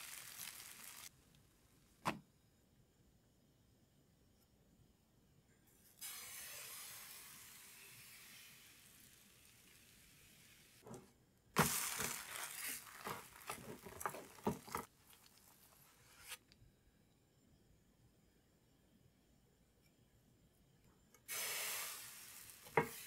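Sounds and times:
pancake sizzling in a frying pan: 0.0s - 1.2s, 6.0s - 10.8s, 11.6s - 16.0s, 21.3s - 23.0s
spatula scraping a pan: 11.6s - 16.4s, 22.6s - 23.0s.

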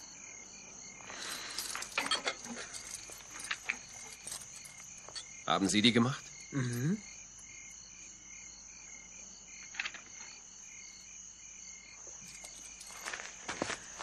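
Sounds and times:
insects chirping: 0.0s - 14.0s
metal chains clinking: 1.1s - 7.5s, 12.2s - 13.8s.

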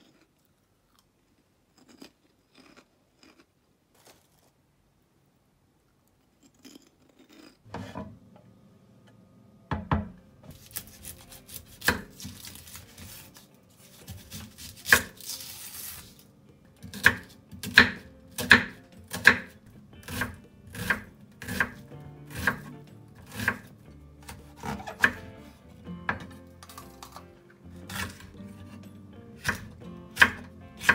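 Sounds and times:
knife knocking on cutting board: 9.7s - 10.2s
knife chopping onion: 9.8s - 16.2s, 16.8s - 30.9s
onion skin rustling: 10.5s - 16.2s.

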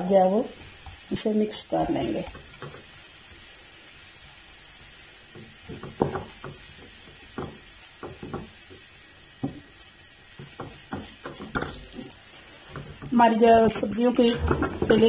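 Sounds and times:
faint food sizzle: 0.0s - 15.0s
spatula scraping frying pan: 10.2s - 15.0s.

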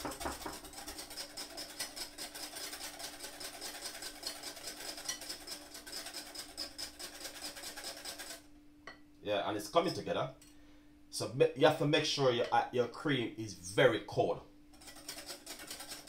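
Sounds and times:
whisk scraping a glass bowl: 0.0s - 8.4s, 14.7s - 16.0s.

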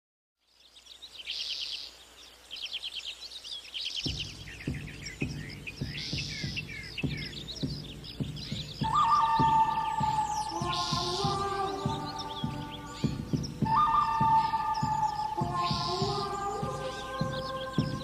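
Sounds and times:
small birds chirping: 0.4s - 18.0s
low pulsing music beat: 4.1s - 18.0s.

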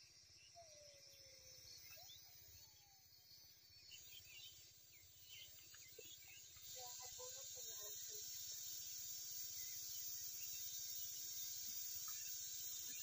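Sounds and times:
distant bird chirps: 0.0s - 13.0s
steady high hiss: 3.7s - 13.0s.

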